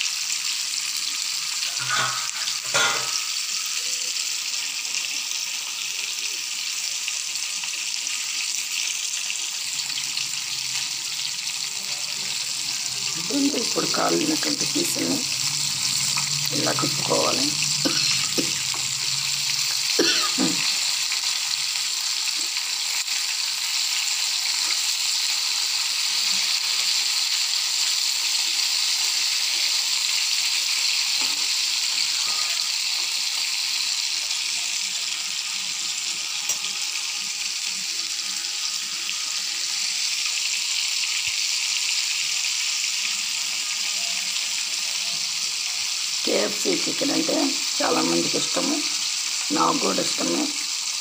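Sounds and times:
chicken deep-frying in oil: 0:00.0 - 0:51.0.

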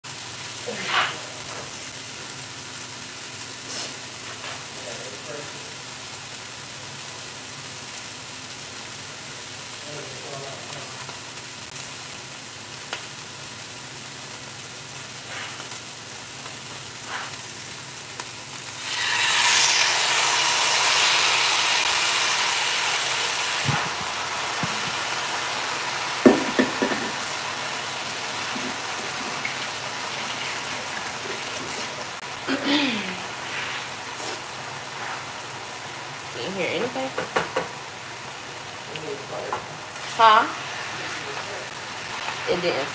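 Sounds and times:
food sizzling in a skillet: 0:00.0 - 0:42.9
utensil knocking on pan: 0:26.2 - 0:27.2, 0:37.2 - 0:37.8.

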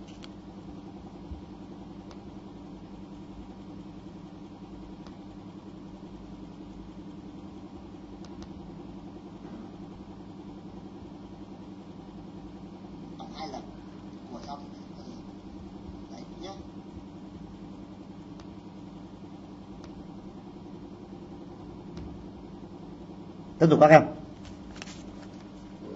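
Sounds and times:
low machine hum: 0:00.0 - 0:25.9.

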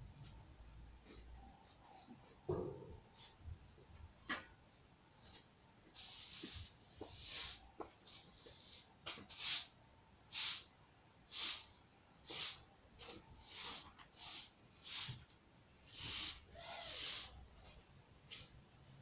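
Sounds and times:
short hissy breaths: 0:15.9 - 0:17.5.

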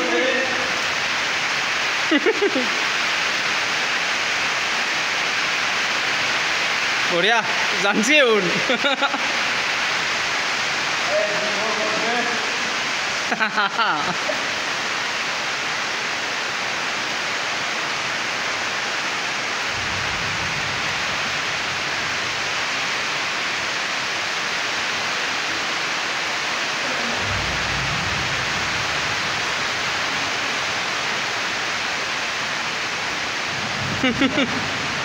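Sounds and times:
steady hiss: 0:00.0 - 0:35.0
low rumble: 0:19.7 - 0:23.3, 0:26.8 - 0:30.6.

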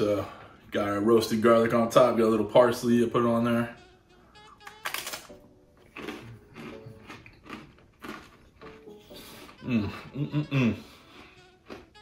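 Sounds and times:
cracker crunching: 0:04.5 - 0:09.9, 0:11.1 - 0:12.0
person humming mmm: 0:08.8 - 0:12.0.

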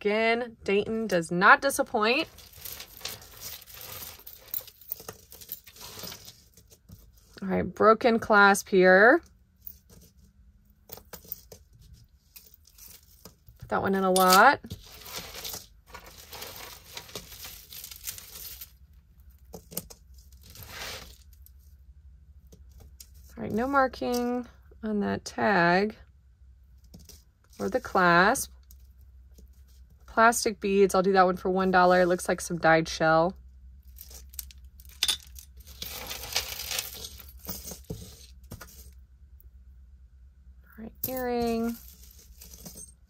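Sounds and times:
jewelry clinking and rattling: 0:02.0 - 0:07.2, 0:10.8 - 0:11.7, 0:12.3 - 0:18.8, 0:33.9 - 0:38.9, 0:40.9 - 0:43.0
packaging crinkling and rustling: 0:02.2 - 0:07.3, 0:14.7 - 0:18.8, 0:35.6 - 0:38.9.

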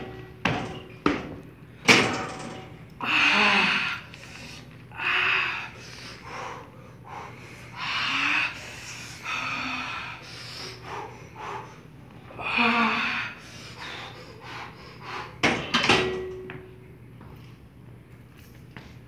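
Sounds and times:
heavy forceful breaths: 0:03.0 - 0:15.6.

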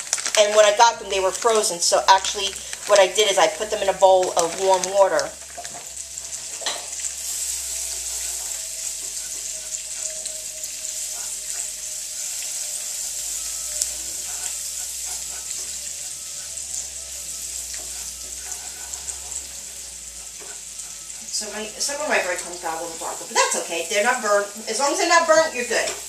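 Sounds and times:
breadcrumbs sizzling in skillet: 0:00.0 - 0:26.0
wooden spoon scraping and tapping: 0:07.8 - 0:21.3.

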